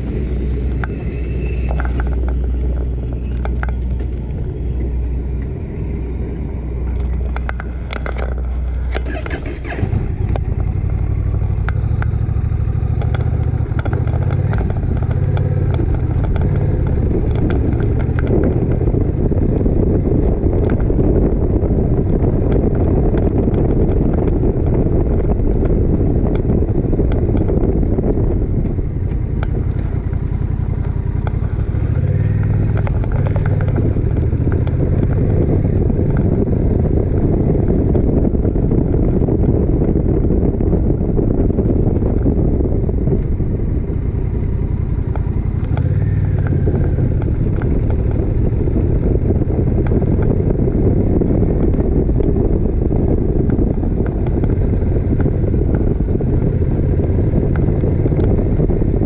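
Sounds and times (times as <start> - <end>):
wind noise on microphone: 0.0 - 59.0
motorcycle engine running: 7.0 - 59.0.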